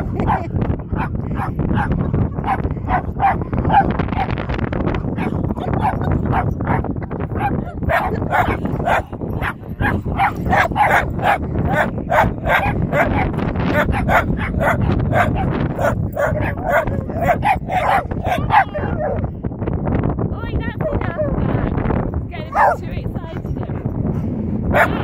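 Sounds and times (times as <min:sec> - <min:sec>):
dog yapping: 0:07.4 - 0:19.2.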